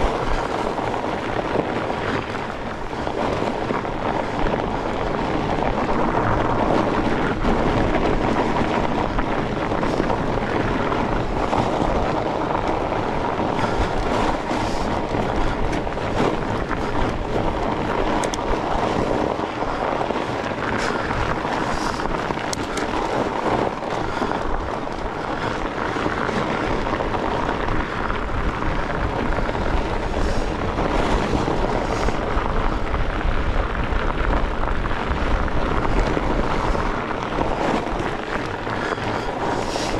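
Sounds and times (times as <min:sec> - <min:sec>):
bike clicks and rattles: 0:00.0 - 0:39.9
bike tyre and drivetrain noise: 0:00.0 - 0:39.9
wind buffeting microphone: 0:00.0 - 0:39.9.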